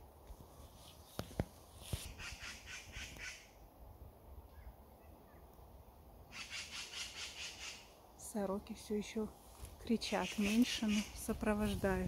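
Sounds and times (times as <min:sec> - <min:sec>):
magpies chattering: 0:10.1 - 0:11.2.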